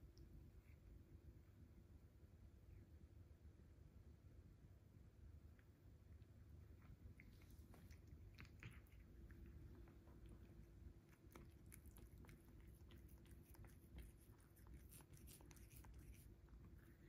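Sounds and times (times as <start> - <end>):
faint steady hum: 0.0 - 17.0
cat chewing and licking: 5.3 - 17.0.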